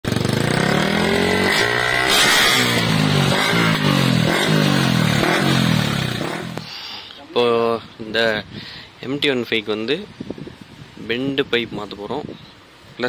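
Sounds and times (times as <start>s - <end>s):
motorcycle engine revving: 0.0s - 6.7s.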